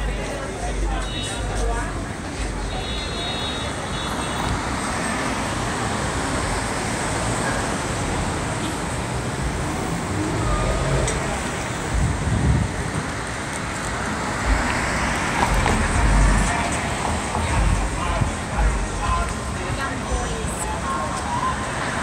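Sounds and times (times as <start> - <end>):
cars passing: 0.0 - 22.0
heavy low traffic rumbles: 0.0 - 22.0.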